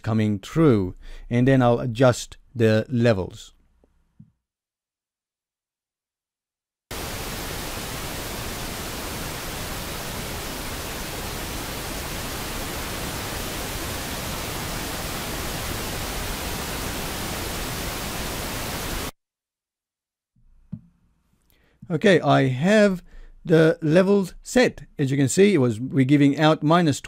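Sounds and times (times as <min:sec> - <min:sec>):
pink noise hiss: 0:06.9 - 0:19.2.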